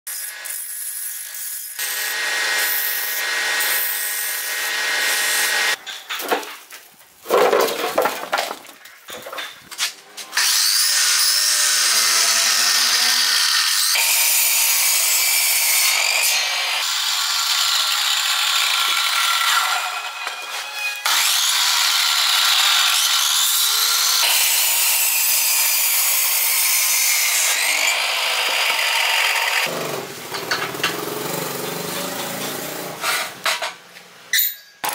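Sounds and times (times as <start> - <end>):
miter saw cutting bamboo: 0.1 - 5.8, 10.2 - 33.4
hand tool scraping: 18.9 - 21.4, 29.6 - 33.8.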